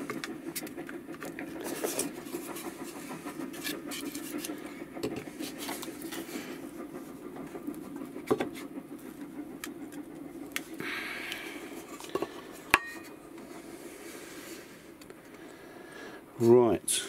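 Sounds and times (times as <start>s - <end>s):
steady low hum: 0.0s - 17.0s
scraping rub: 1.2s - 7.8s.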